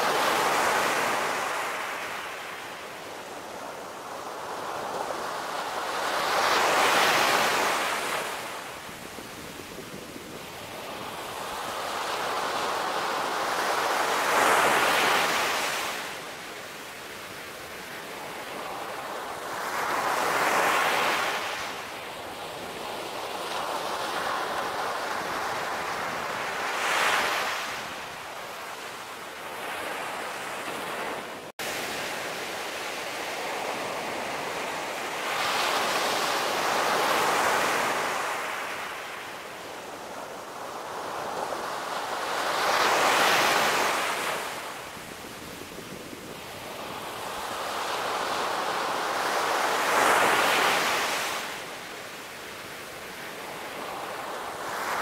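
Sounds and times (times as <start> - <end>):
ocean surf breaking on beach: 0.0 - 55.0.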